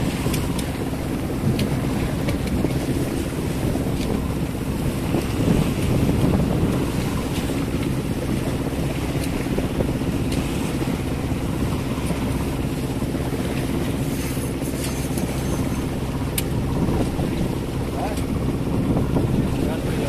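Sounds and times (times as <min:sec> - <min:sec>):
boat engine droning: 0:00.0 - 0:20.0
choppy waves: 0:00.0 - 0:20.0
wind buffeting microphone: 0:00.0 - 0:20.0.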